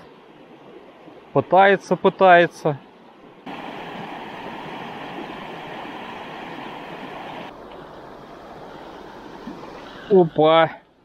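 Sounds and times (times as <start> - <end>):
river water rushing: 2.9 - 10.6.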